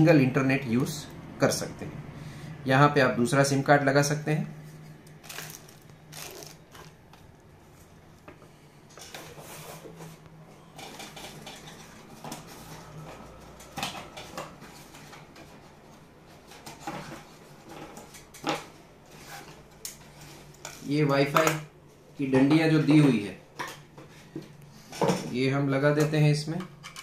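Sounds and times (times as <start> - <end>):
plastic bags rustling: 5.0 - 7.5.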